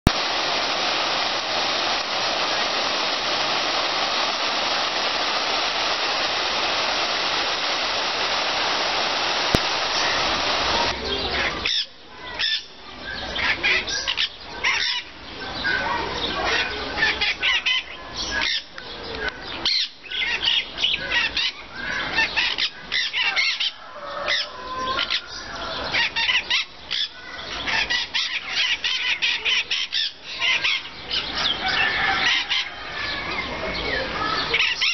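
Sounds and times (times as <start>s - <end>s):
steady rushing noise: 0.0s - 11.0s
birds chirping and screeching: 1.8s - 34.9s.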